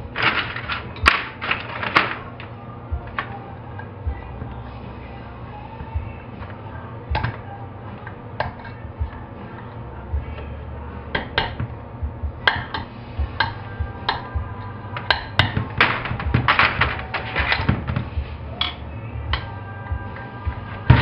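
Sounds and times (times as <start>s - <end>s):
steady low hum: 0.0s - 21.0s
hammer tapping on metal: 12.4s - 14.4s, 15.0s - 17.8s.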